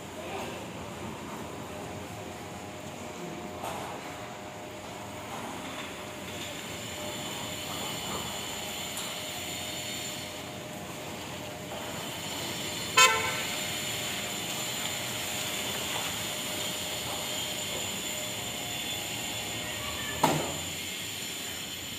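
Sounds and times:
loud toot: 12.9 - 13.6.

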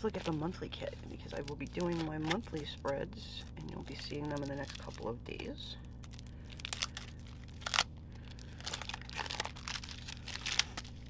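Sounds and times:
cellophane crinkling: 0.0 - 11.0.

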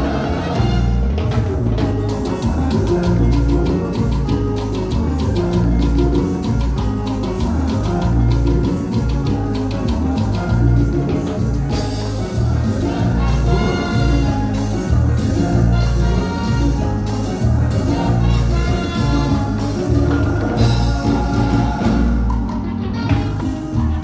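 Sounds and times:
trumpet lines: 0.0 - 1.6, 11.8 - 24.0
conga drumming: 0.0 - 24.0
latin dance band: 0.0 - 24.0.

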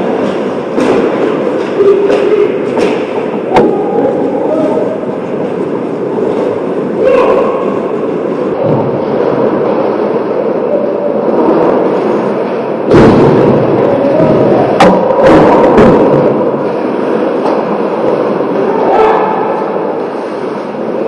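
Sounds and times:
loud thump: 12.9 - 16.4.

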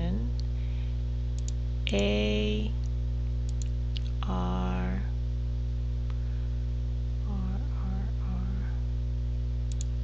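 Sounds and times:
electrical mains hum: 0.0 - 10.0
faint clicks: 9.7 - 9.9.

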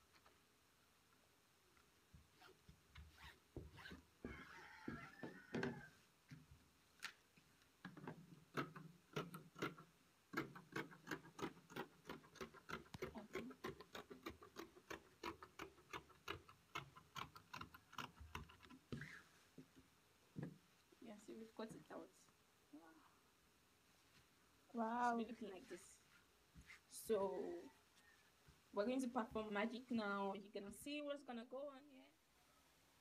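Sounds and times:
cloth rustling: 25.5 - 27.0.

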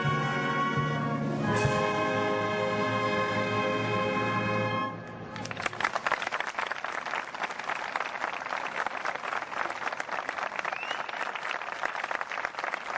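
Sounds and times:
audience applauding: 5.4 - 12.9.

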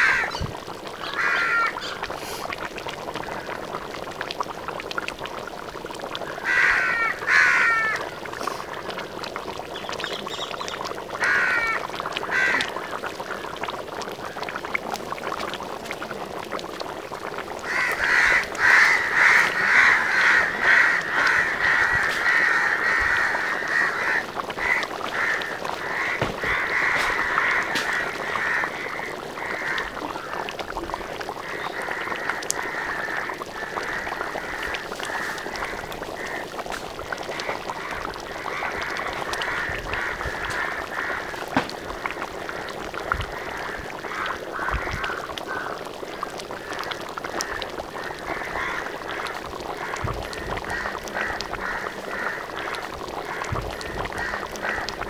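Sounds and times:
birds calling: 0.0 - 2.0, 9.7 - 12.7
curry bubbling in a pan: 0.0 - 55.0.

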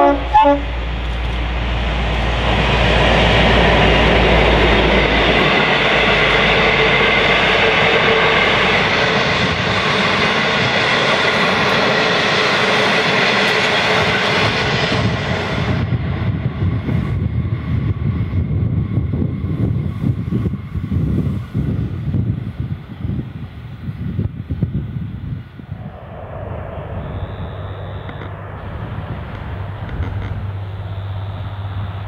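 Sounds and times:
diesel locomotive engine drone: 0.0 - 32.0
wind on microphone: 0.0 - 32.0
train wheels clattering on rails: 0.9 - 15.9.

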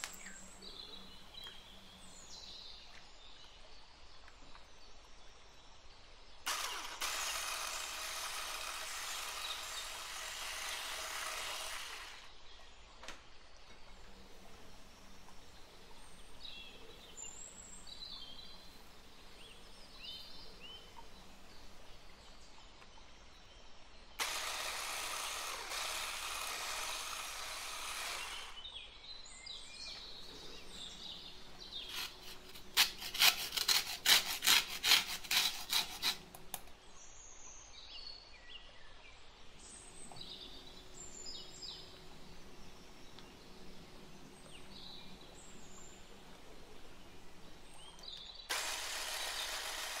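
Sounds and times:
steady hiss: 0.0 - 2.3
birds chirping: 0.0 - 50.0
sharp scraping strokes: 6.5 - 12.3, 31.6 - 36.7.

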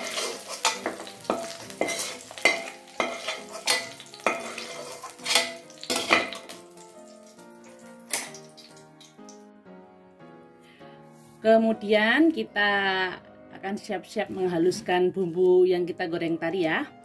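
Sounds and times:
metal ladle scraping wok: 0.0 - 6.4
hot oil sizzling: 0.0 - 9.5.

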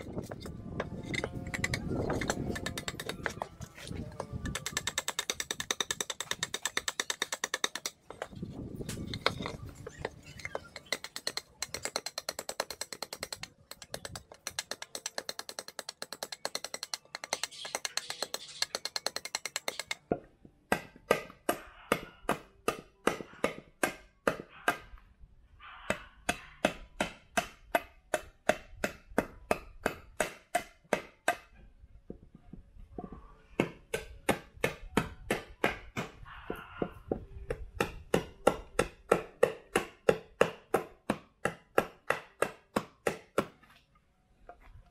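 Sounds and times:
cleaver chopping wood: 20.7 - 24.9, 26.3 - 31.5, 33.6 - 43.6.

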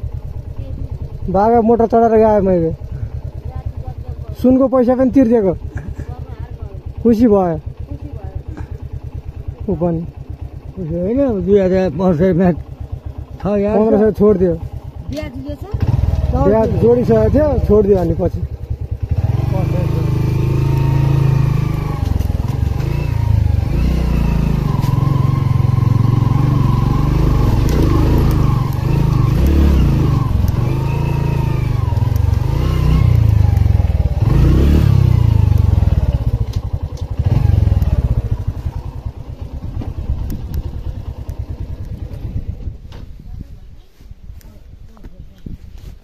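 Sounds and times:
motorcycle engine revving: 0.0 - 43.2.

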